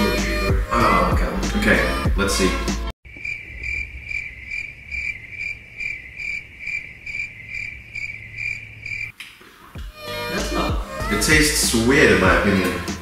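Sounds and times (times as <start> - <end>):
cricket chirping: 3.0 - 9.1.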